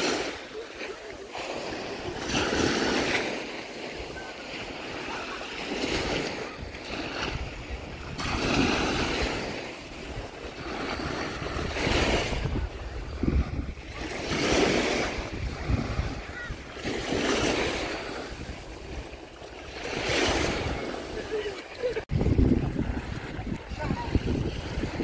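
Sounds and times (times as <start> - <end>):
waves washing up a beach: 0.0 - 25.0
wind rumble on microphone: 6.0 - 21.1, 21.9 - 25.0.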